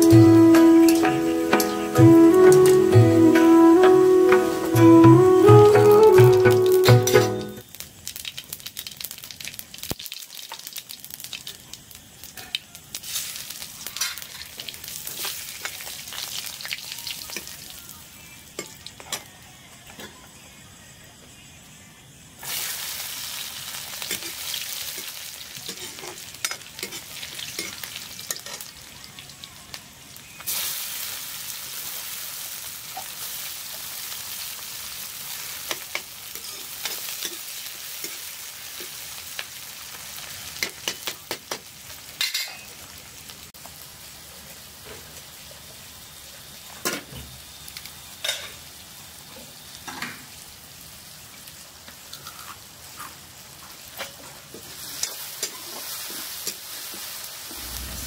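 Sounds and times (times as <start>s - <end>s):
vegetables sizzling in hot oil: 0.0s - 58.0s
spoon scraping and clacking on pan: 25.7s - 28.7s, 54.9s - 56.6s.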